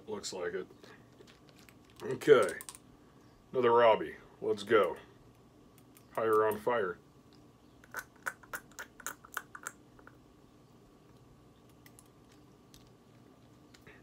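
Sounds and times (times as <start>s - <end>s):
mouth and tongue clicks: 7.3s - 10.2s.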